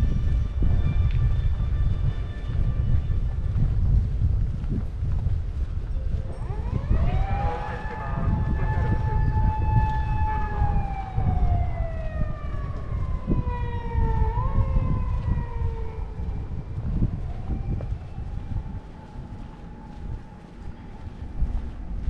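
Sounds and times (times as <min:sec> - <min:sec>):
low street rumble: 0:00.0 - 0:22.0
wind noise: 0:00.0 - 0:22.0
siren wailing: 0:06.1 - 0:21.8.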